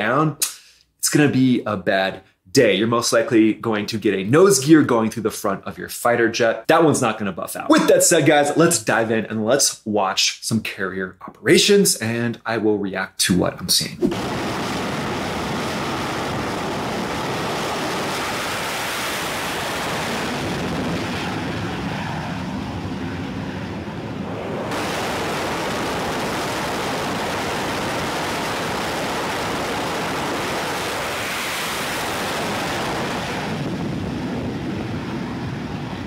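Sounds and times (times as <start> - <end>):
jet engines at high power: 14.1 - 36.0
wind buffeting microphone: 31.9 - 36.0.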